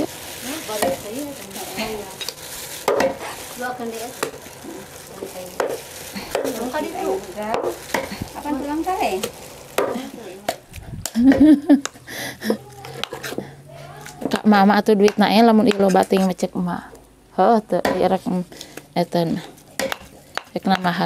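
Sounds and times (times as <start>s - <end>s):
faint voices: 12.2s - 14.5s
cleaver chopping on wooden block: 19.8s - 20.5s.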